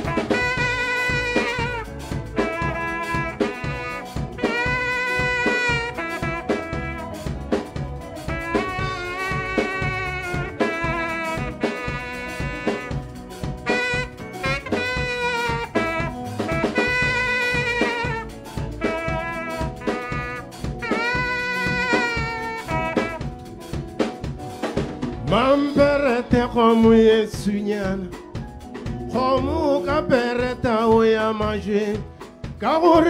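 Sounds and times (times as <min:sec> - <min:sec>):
saxophone solo: 0:00.0 - 0:24.5
drum kit beat: 0:00.0 - 0:33.0
electric bass: 0:00.0 - 0:33.0.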